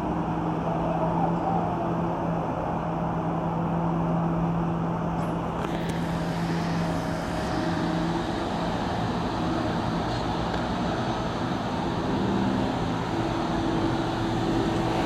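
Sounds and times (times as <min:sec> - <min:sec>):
excavator diesel engine humming: 0:00.0 - 0:15.0
road traffic: 0:00.0 - 0:15.0.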